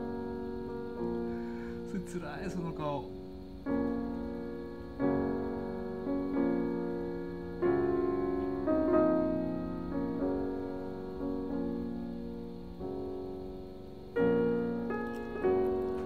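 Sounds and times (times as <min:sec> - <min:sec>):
slow piano piece: 0:00.0 - 0:16.0.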